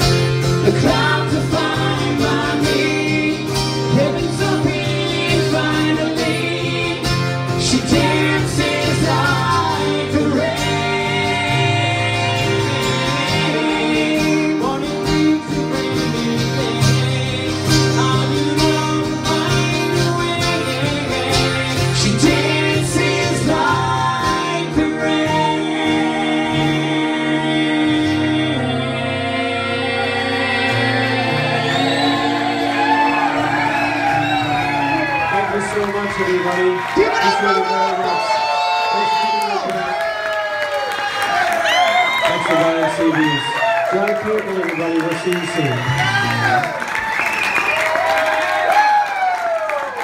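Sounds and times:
people singing: 0.0s - 35.3s
acoustic guitars strummed: 0.0s - 36.4s.

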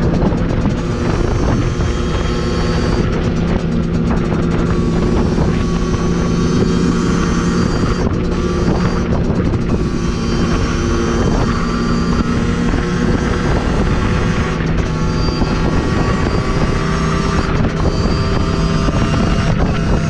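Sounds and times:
dirt bike engine running: 0.0s - 20.0s
wind noise: 0.0s - 20.0s.

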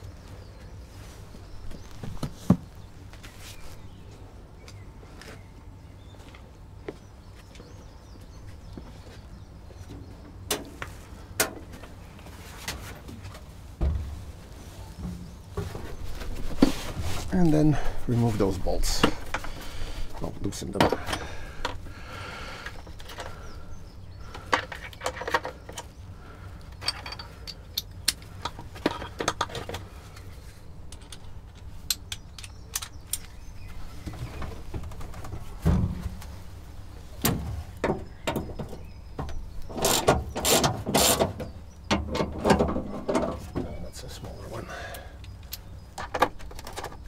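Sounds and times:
dull thump: 13.8s - 14.4s, 35.6s - 36.4s.

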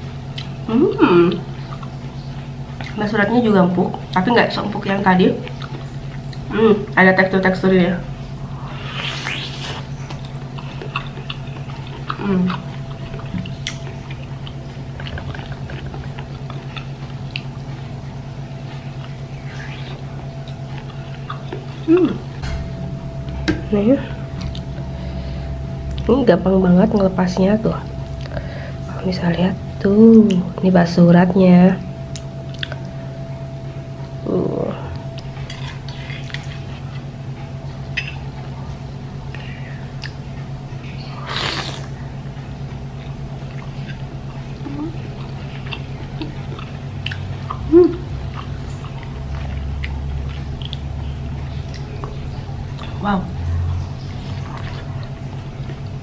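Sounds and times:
steady low hum: 0.0s - 56.0s
brief rush of noise: 8.7s - 9.9s
woman biting and chewing: 8.8s - 18.0s
wet mouth clicks: 32.1s - 32.9s.

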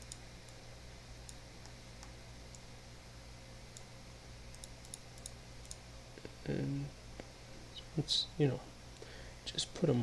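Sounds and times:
computer mouse clicks: 0.0s - 0.6s, 4.5s - 5.8s
steady low hum: 0.0s - 10.0s.

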